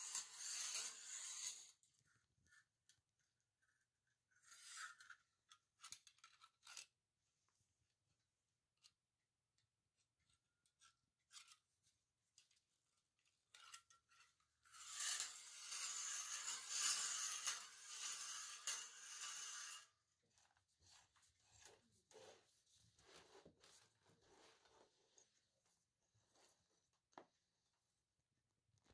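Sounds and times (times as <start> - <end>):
steel rod scraping in pipe: 0.0 - 1.8, 14.6 - 20.0.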